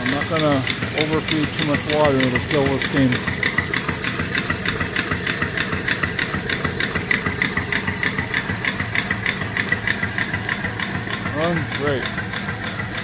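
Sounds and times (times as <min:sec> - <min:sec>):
steady hiss of steam: 0:00.0 - 0:08.1
steam engine chuffing: 0:00.0 - 0:13.0.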